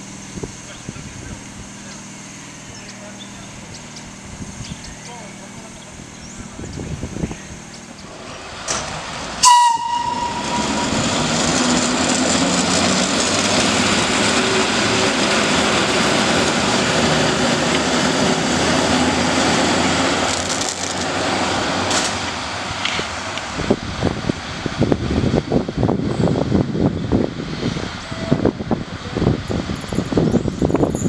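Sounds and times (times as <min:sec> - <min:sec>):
train wheels clattering on rails: 0:08.5 - 0:23.5
locomotive horn blast: 0:09.4 - 0:11.2, 0:28.0 - 0:28.6.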